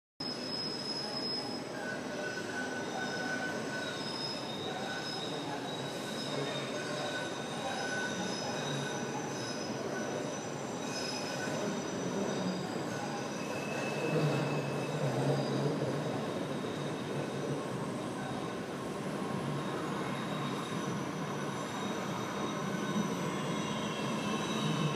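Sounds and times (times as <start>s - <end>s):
train wheels squealing on rails: 0.2s - 24.9s.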